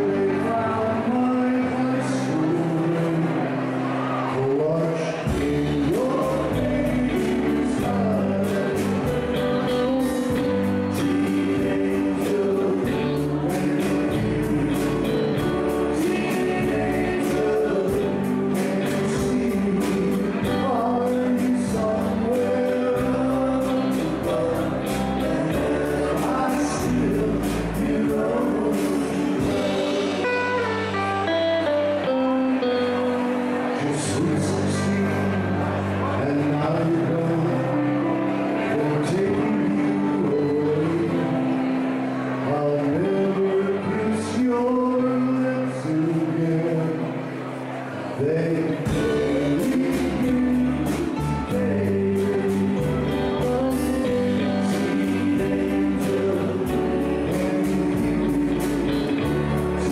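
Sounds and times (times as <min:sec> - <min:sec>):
bass line: 0:00.0 - 0:59.9
guitar: 0:00.0 - 0:59.9
person singing: 0:00.0 - 0:59.9
steady drum beat: 0:24.2 - 0:30.8.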